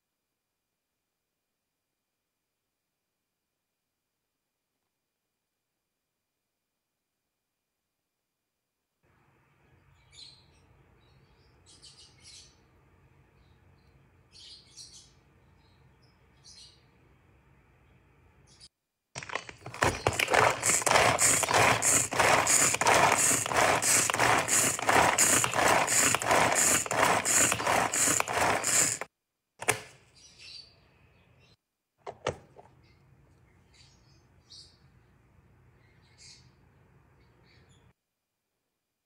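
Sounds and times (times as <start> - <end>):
food chopper whirring: 19.2 - 29.1.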